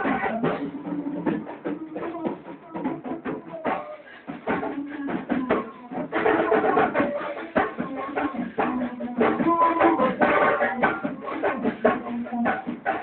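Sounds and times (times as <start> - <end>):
hand drums and percussion: 0.0 - 13.0.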